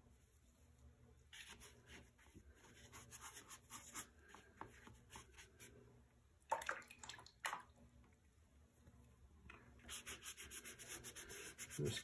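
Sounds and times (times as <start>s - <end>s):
brush scrubbing wet paint: 0.0s - 5.8s, 9.8s - 12.0s.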